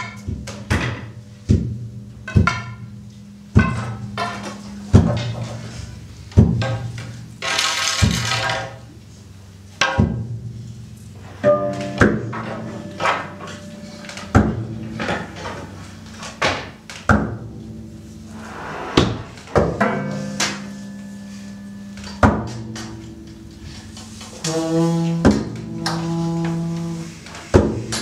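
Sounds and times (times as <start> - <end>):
sustained low tones: 17.5 - 20.5
cymbal-like wash: 17.7 - 22.2.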